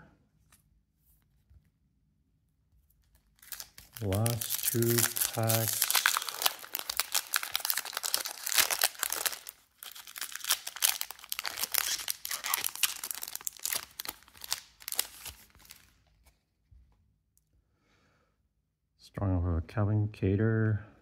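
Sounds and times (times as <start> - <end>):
foil wrapper crinkling and tearing: 3.0 - 16.2.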